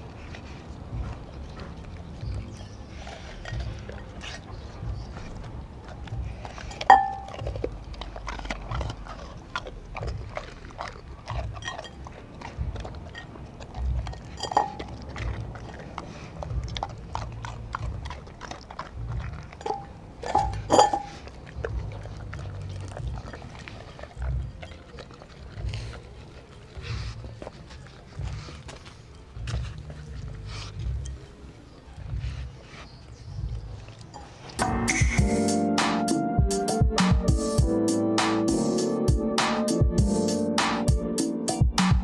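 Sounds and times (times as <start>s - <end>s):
dog licking and chewing food: 0.0s - 35.7s
glass bowl clinking: 6.8s - 7.4s, 14.4s - 14.8s, 19.6s - 21.1s.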